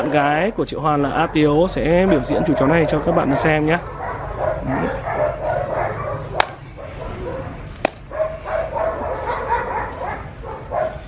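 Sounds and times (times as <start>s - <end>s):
dogs barking and whining: 0.0s - 11.0s.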